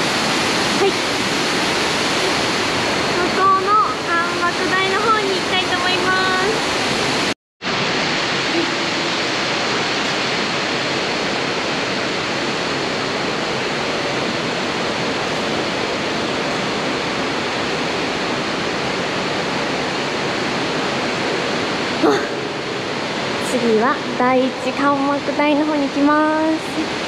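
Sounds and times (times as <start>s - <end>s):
waterfall rushing: 0.0s - 27.0s.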